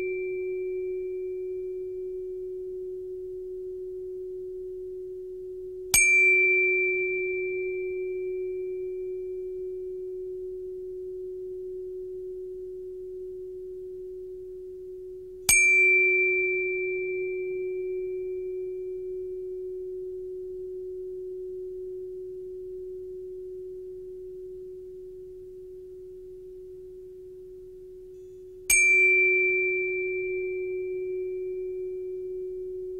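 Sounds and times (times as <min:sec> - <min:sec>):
metallic ringing chime: 0:28.2 - 0:32.5.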